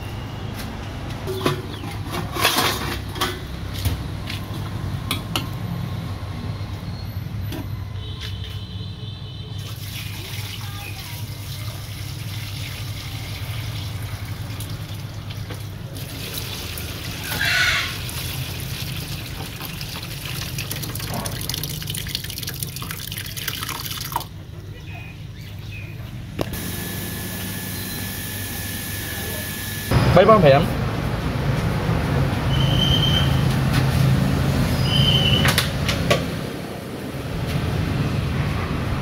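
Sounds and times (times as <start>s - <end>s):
liquid splashing into sink: 12.0s - 24.3s.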